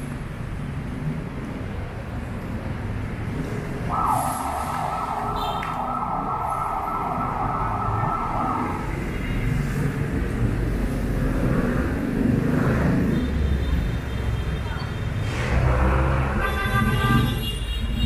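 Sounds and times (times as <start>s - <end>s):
passing vehicles rumble: 0.0s - 18.0s
vehicle approaching: 15.2s - 16.4s.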